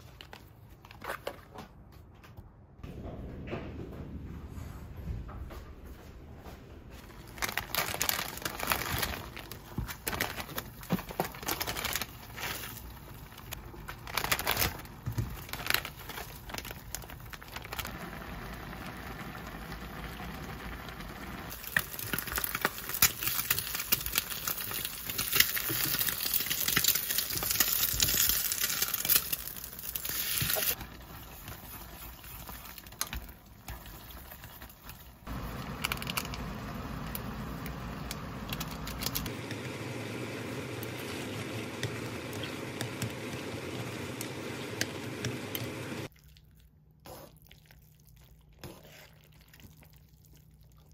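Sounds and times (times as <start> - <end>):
water boiling and sizzling: 7.4 - 46.1.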